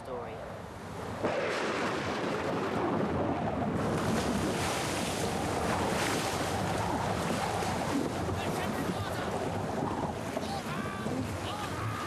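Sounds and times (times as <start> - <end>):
loud wind: 0.0 - 12.0
waves: 0.0 - 12.0.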